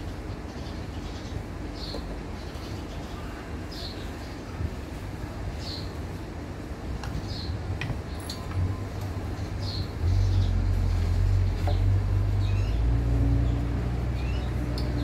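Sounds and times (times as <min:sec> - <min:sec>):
low engine rumble: 0:04.5 - 0:15.0.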